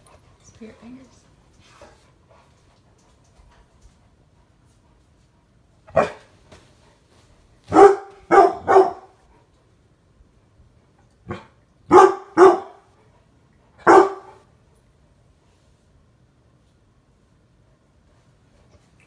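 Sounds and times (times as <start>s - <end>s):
dog barking deeply: 5.9s - 6.2s, 7.7s - 9.2s, 11.3s - 12.8s, 13.8s - 14.4s.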